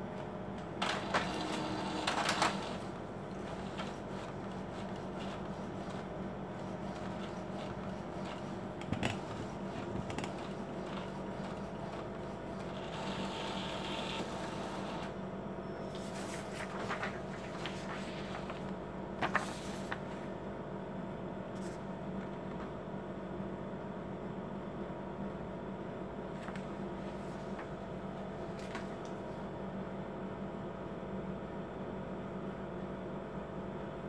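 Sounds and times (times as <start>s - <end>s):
printer mechanical whir: 0.1s - 20.4s
printer sharp clicks: 0.7s - 2.9s
paper rustling: 0.9s - 14.4s, 15.9s - 20.3s, 21.6s - 22.7s, 26.4s - 27.8s, 28.4s - 29.2s.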